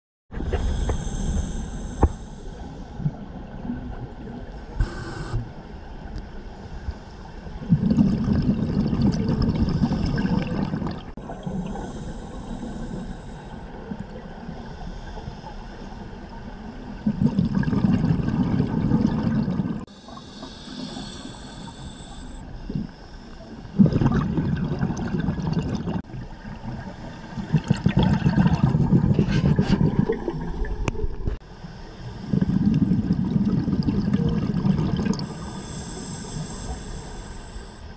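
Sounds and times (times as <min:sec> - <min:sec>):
exhaled bubbles rumbling underwater: 0:00.3 - 0:31.4, 0:32.2 - 0:37.7
hiss of inhaled air: 0:00.4 - 0:03.0, 0:04.7 - 0:05.5, 0:11.3 - 0:13.8, 0:19.9 - 0:22.5, 0:35.2 - 0:37.9.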